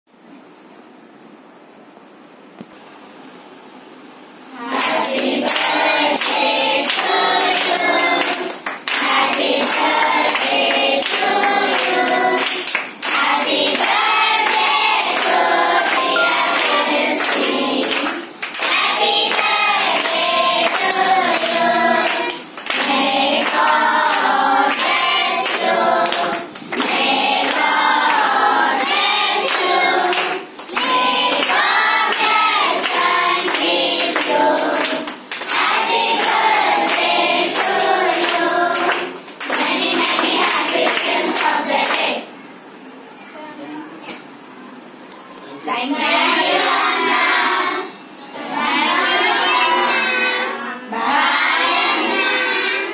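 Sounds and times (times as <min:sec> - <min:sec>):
children singing in unison: 0:04.6 - 0:42.3, 0:46.1 - 0:52.9
hand claps: 0:04.7 - 0:42.2.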